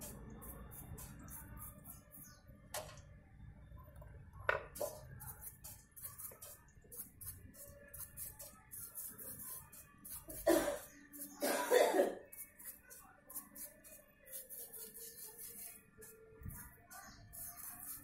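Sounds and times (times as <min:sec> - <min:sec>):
person coughing: 0:10.4 - 0:10.8, 0:11.4 - 0:12.2.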